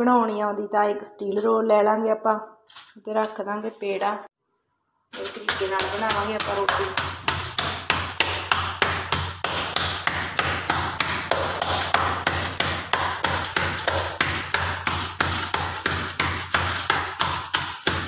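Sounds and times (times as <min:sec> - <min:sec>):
palm slapping dough: 0:05.2 - 0:18.0.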